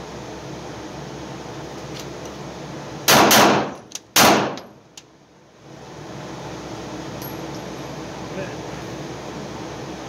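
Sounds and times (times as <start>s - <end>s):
pistol shots: 3.1s - 4.7s.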